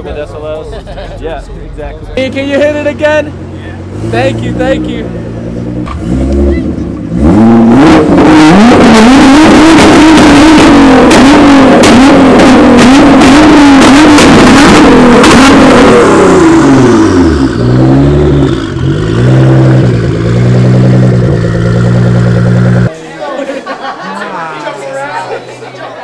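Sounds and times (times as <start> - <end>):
exhaust crackles: 1.6 - 22.9
car engine revving: 2.2 - 22.9.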